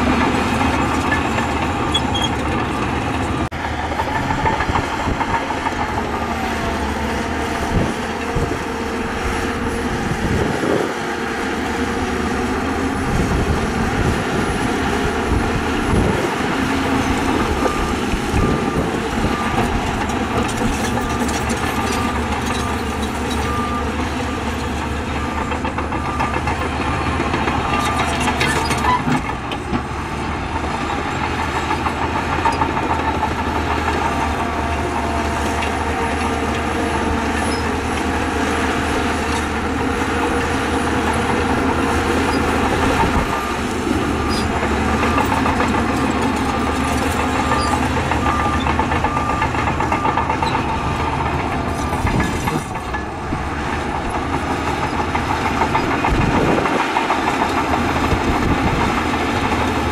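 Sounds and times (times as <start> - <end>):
heavy diesel machinery running: 0.0 - 59.9
reversing alarm beeping: 17.0 - 28.7, 40.6 - 53.2.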